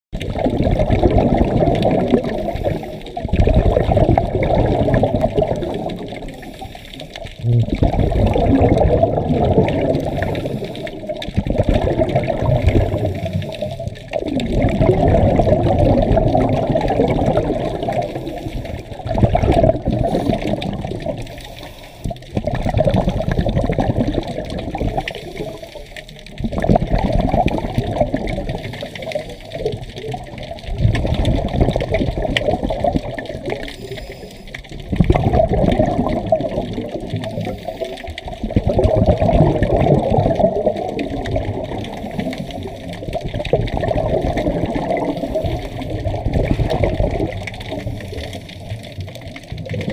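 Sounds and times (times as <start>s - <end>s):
underwater exhaled bubbles rushing: 0.2s - 49.9s.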